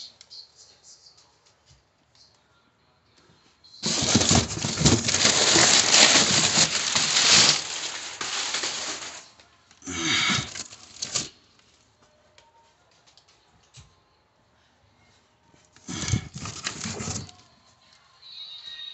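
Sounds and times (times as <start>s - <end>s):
cardboard boxes rustling and scraping: 3.8s - 9.3s, 15.9s - 17.3s.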